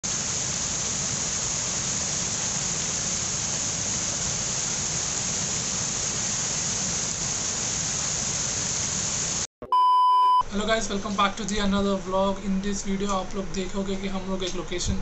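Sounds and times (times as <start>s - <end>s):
water pouring over waterfall: 0.0s - 9.5s.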